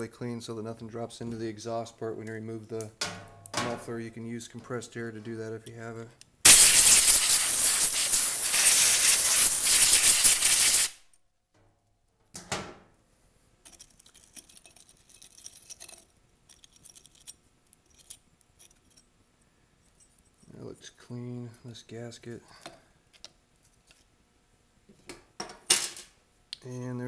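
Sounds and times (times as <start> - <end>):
air blow gun hissing: 6.5 - 11.0.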